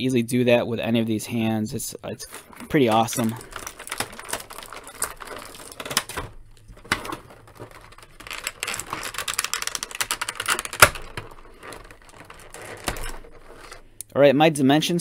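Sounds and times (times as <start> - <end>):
plastic packaging crinkling: 2.2 - 14.0.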